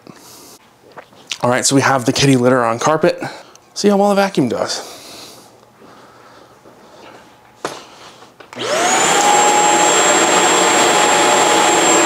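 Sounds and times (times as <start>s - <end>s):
vacuum motor whining: 8.6s - 12.0s.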